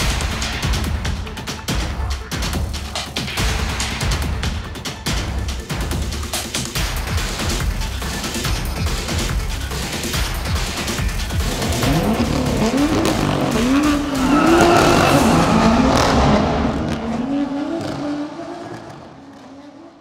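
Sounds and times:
car engine accelerating: 10.8s - 20.0s.

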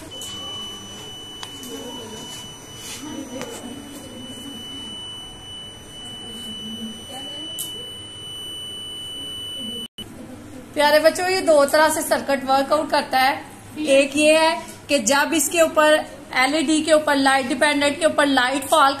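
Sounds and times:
high-pitched buzzer tone: 0.0s - 10.0s.

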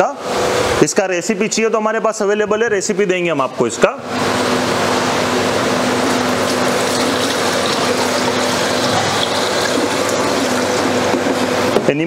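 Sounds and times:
low machine hum: 0.0s - 12.0s
liquid pouring: 5.6s - 11.7s.

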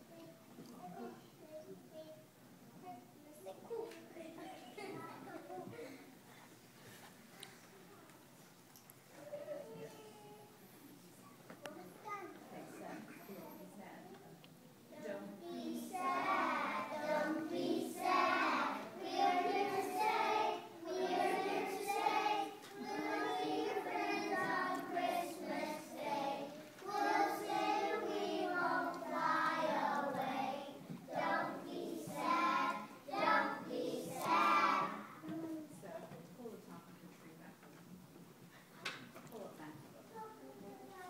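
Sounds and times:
children singing: 15.5s - 35.2s.

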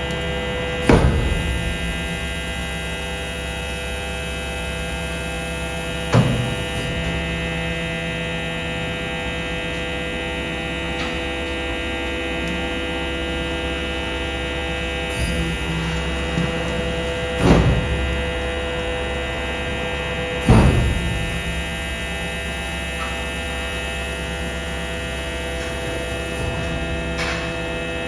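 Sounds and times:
compactor machinery humming: 0.0s - 28.0s
sharp clunk: 17.4s - 18.1s, 26.4s - 27.6s.

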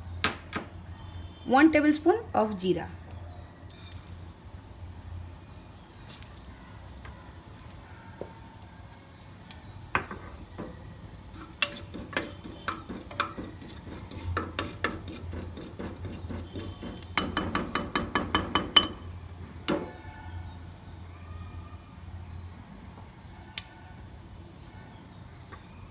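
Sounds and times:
seeds sizzling in hot oil: 3.6s - 20.9s, 23.2s - 25.9s
metal spoon clinking and scraping pot: 10.0s - 19.1s
rapid spoon strikes on pot: 11.4s - 19.0s.

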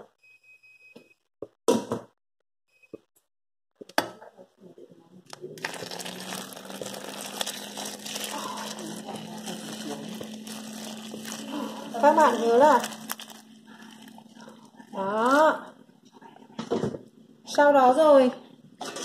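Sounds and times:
water pouring into metal pot: 5.6s - 14.6s.

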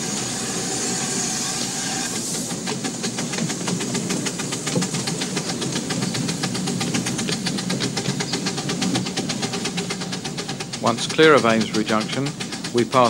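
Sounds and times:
steam hissing: 0.0s - 13.0s
steam locomotive exhaust beats: 0.0s - 13.0s.

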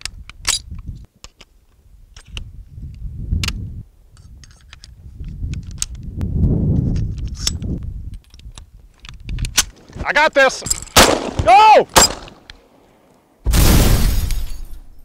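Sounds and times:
metallic clicks of rifle handling: 0.0s - 6.1s, 7.0s - 9.8s.

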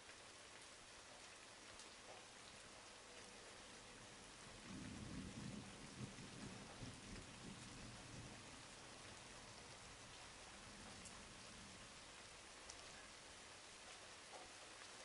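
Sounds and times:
rain falling: 0.0s - 15.0s
low rumble of thunder: 3.9s - 12.2s.

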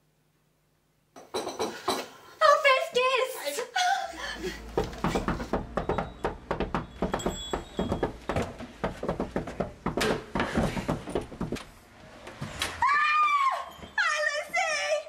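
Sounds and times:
knocking on wooden door: 4.8s - 11.6s
small bell ringing: 6.9s - 8.2s, 13.6s - 14.8s.

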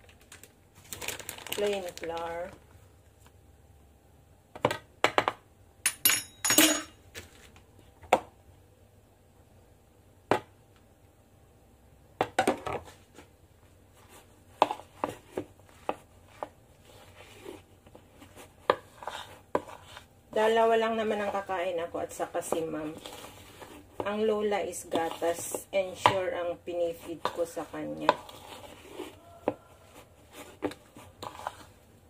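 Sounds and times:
plastic bag rustling: 0.0s - 2.6s.

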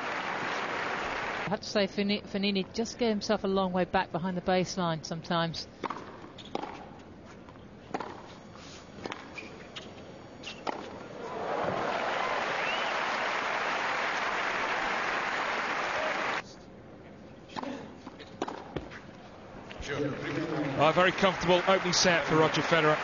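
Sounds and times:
crowd applauding: 0.0s - 1.5s, 11.2s - 16.4s, 20.2s - 23.0s
tennis ball bouncing: 5.8s - 6.8s, 18.2s - 19.0s.

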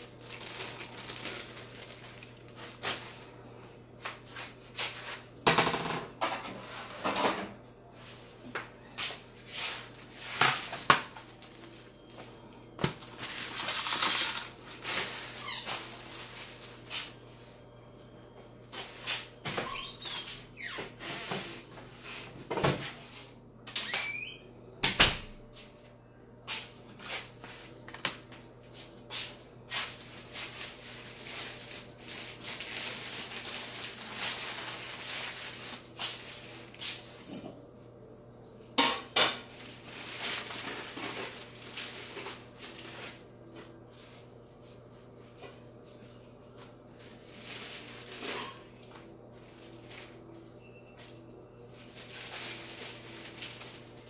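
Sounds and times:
dishes clattering on countertop: 5.4s - 7.6s
rustling noise: 9.0s - 10.4s.

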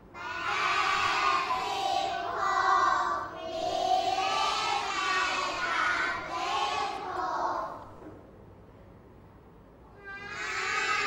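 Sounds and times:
children chanting in chorus: 0.1s - 7.9s, 10.0s - 11.0s.

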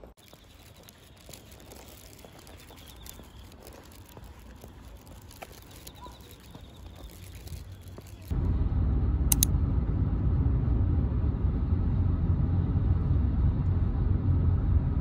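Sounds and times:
light footsteps: 0.0s - 8.3s
plastic bag rustling: 0.1s - 8.3s.

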